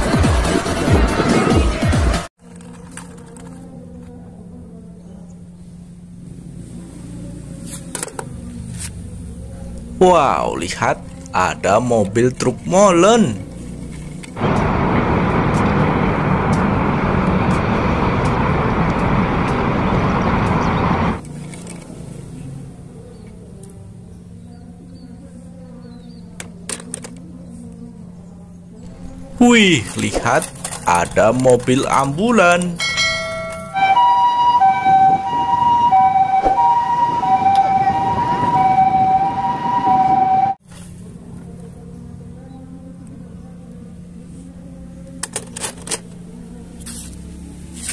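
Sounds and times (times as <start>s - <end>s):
street traffic: 2.1s - 47.9s
concrete mixer truck running: 14.4s - 21.2s
two-tone ambulance siren: 14.4s - 21.2s, 32.1s - 40.6s.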